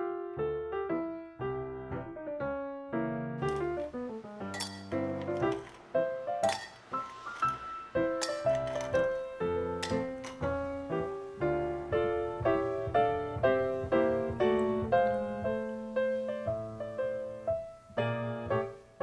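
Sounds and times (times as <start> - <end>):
piano music: 0.0 - 19.0
ice cubes clinking into glass: 3.5 - 9.2, 9.8 - 10.5.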